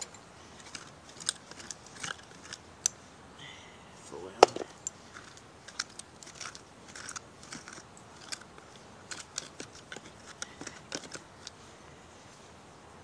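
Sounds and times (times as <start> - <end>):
hand tool scraping dirt: 0.0 - 2.7, 4.4 - 11.7.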